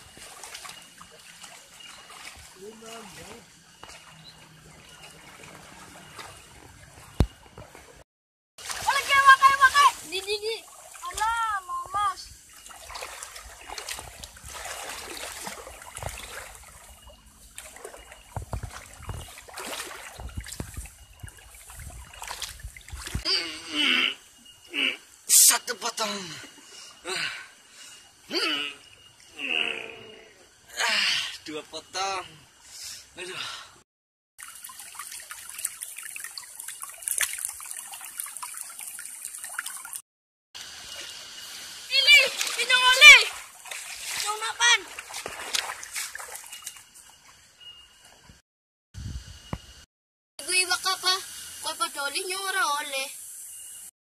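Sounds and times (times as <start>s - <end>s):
legs wading through water: 0.0s - 8.0s, 8.6s - 23.3s, 34.4s - 40.0s, 41.9s - 47.4s
muddy water splashing: 0.0s - 8.0s, 8.6s - 23.5s, 34.4s - 40.0s, 40.8s - 47.4s
small stream trickling: 0.0s - 8.0s, 8.6s - 33.2s, 34.4s - 40.0s, 40.6s - 48.4s, 50.4s - 53.9s.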